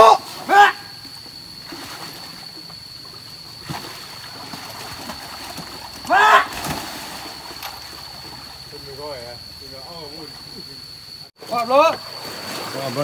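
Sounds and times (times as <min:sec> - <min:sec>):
person shouting a call: 0:00.0 - 0:00.9, 0:06.1 - 0:06.5
stream running over rocks: 0:01.2 - 0:09.6, 0:10.4 - 0:13.0.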